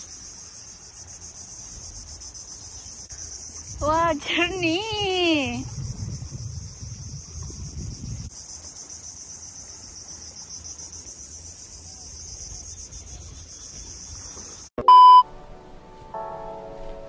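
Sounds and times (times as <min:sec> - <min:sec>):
insect chorus buzzing: 0:00.0 - 0:14.7.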